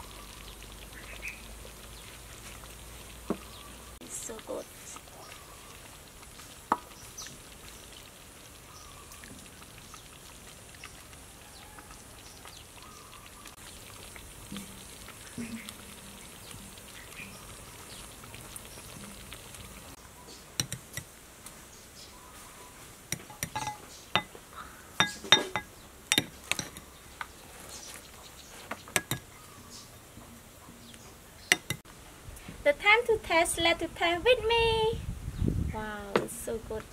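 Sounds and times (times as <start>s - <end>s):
metal spoon clinking on glass: 23.2s - 24.3s, 25.0s - 26.8s, 29.0s - 29.2s, 31.5s - 31.8s.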